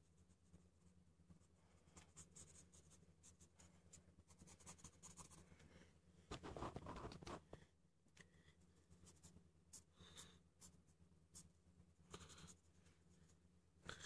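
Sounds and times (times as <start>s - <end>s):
pencil scratching on paper: 0.0s - 5.5s, 6.3s - 7.5s
steady low hum: 0.0s - 14.0s
hand and paper rustling: 6.3s - 7.7s.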